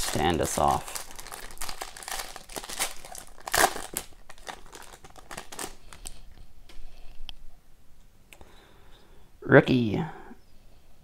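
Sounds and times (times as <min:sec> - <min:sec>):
plastic wrapper crinkling: 0:00.0 - 0:06.4.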